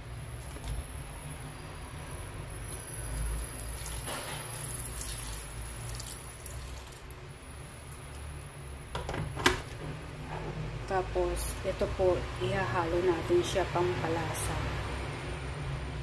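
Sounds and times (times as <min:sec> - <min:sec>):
water pouring into a pot: 0:02.9 - 0:07.2.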